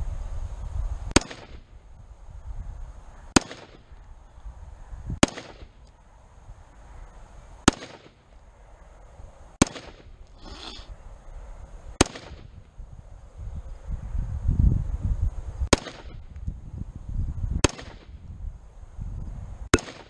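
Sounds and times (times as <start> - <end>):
rifle shots with echo: 1.1 - 1.7, 3.3 - 3.9, 5.2 - 5.8, 7.6 - 8.2, 9.6 - 10.2, 12.0 - 12.6, 15.7 - 16.2, 17.6 - 18.1, 19.7 - 20.0.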